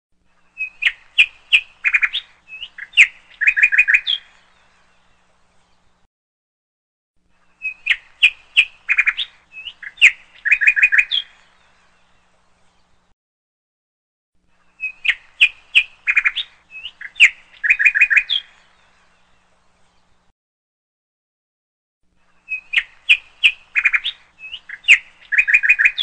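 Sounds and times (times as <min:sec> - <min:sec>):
songbird chirping and whistling: 0:00.3 - 0:05.9, 0:07.4 - 0:13.0, 0:14.6 - 0:20.2, 0:22.2 - 0:26.0.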